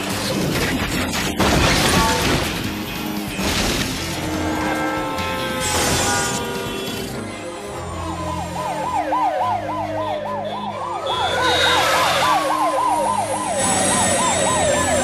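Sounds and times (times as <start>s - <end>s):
siren slow wail: 4.2s - 15.0s
siren fast yelp: 8.4s - 15.0s.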